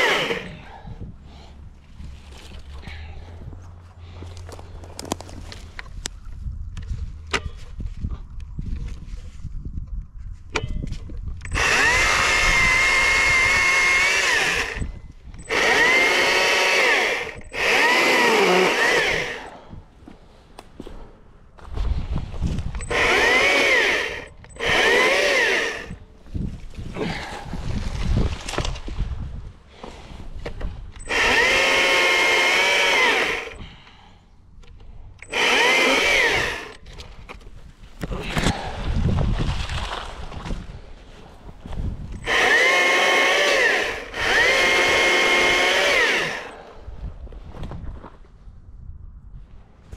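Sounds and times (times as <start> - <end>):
electric chainsaw whining: 0.0 - 0.7, 11.5 - 19.6, 22.8 - 26.0, 31.0 - 33.6, 35.2 - 36.8, 42.2 - 46.7.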